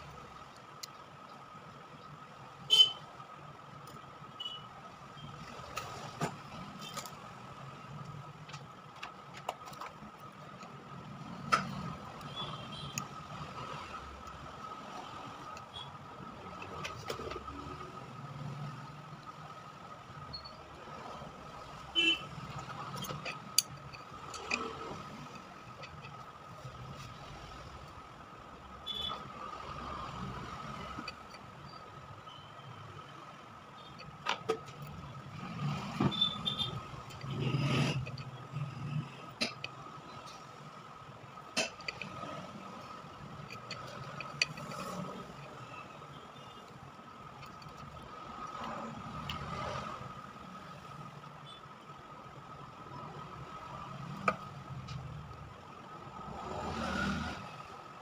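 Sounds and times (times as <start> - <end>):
tools clicking and tapping: 5.6 - 19.4, 21.4 - 27.2, 28.9 - 32.3, 33.1 - 50.0, 54.0 - 55.5.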